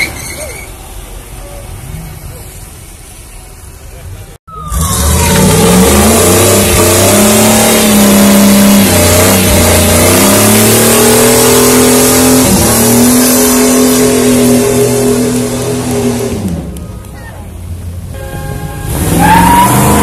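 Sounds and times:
tyres spinning and screeching: 0:00.0 - 0:03.8, 0:18.8 - 0:20.0
van engine revving high: 0:04.7 - 0:16.7, 0:18.8 - 0:20.0.

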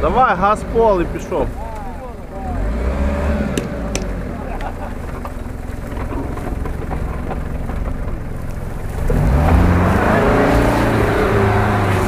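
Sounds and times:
engine revving at full throttle: 0:00.0 - 0:05.2, 0:08.9 - 0:12.0.

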